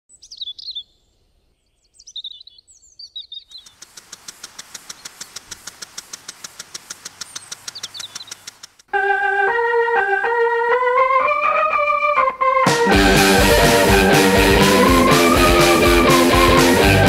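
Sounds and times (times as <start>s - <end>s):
birds singing: 0.1s - 5.4s, 7.0s - 8.7s
lawn sprinkler ticking: 3.5s - 8.9s
water spray hiss: 3.7s - 8.9s.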